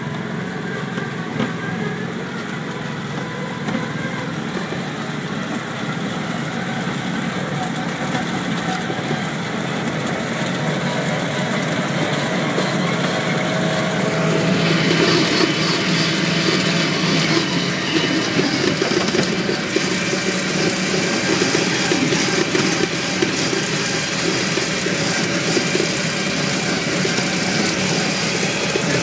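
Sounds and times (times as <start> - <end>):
vehicle engine running: 0.0 - 29.0.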